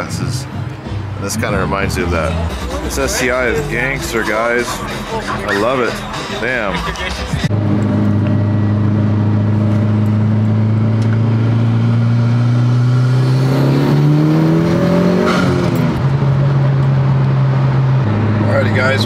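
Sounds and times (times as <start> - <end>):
car engine drone accelerating: 0.0 - 19.0.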